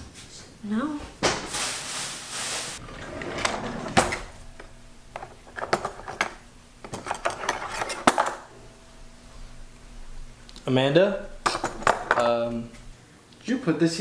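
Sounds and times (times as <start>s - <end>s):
objects clattering in a drawer: 2.8s - 8.5s, 11.4s - 12.4s
faint steady hum: 2.8s - 14.0s.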